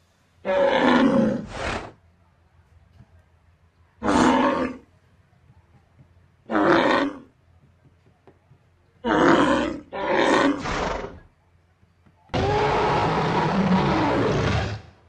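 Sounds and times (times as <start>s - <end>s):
dinosaur roars: 0.5s - 2.0s, 12.4s - 15.0s.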